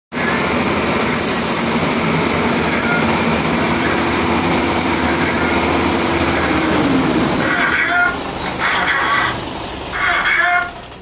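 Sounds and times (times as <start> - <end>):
diesel truck engine idling: 0.2 - 11.0
loud even hiss: 1.2 - 2.4.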